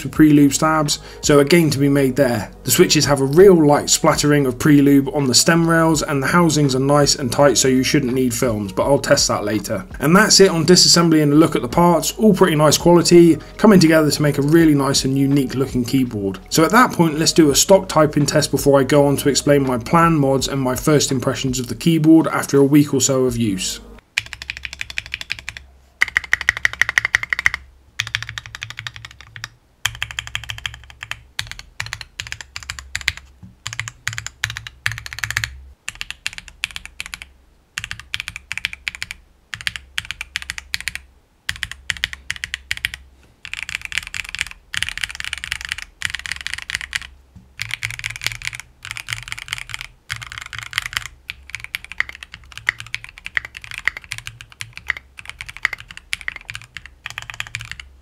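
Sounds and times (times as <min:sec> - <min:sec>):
mechanical keyboard typing: 0:24.1 - 0:57.9.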